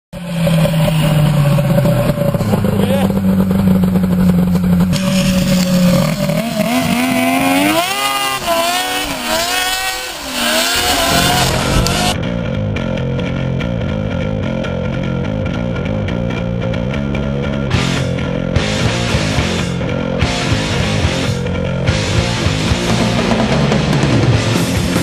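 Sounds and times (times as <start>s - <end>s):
snowmobile engine revving: 0.2s - 12.2s, 17.7s - 25.0s.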